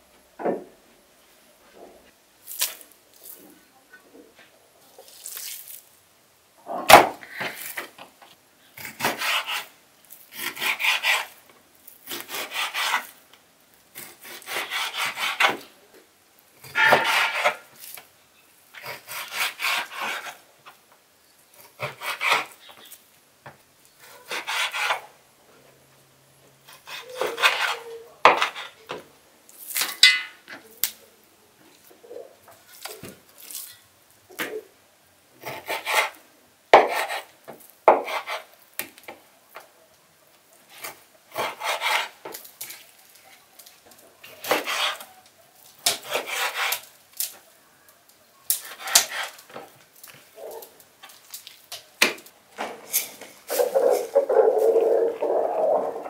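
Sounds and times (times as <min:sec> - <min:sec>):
knife sawing meat on wooden board: 0:09.0 - 0:09.7, 0:10.4 - 0:11.3, 0:12.1 - 0:13.1, 0:14.0 - 0:15.6, 0:18.9 - 0:20.4, 0:24.2 - 0:25.0, 0:26.7 - 0:27.8, 0:41.3 - 0:42.2, 0:44.4 - 0:45.0, 0:46.0 - 0:46.8.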